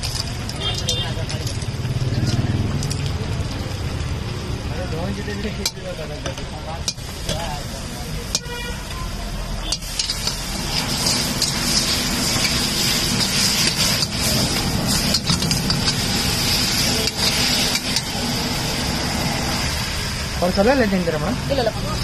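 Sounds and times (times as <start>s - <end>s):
food sizzling: 0.0s - 22.0s
metal ladle scraping pan: 9.6s - 19.7s.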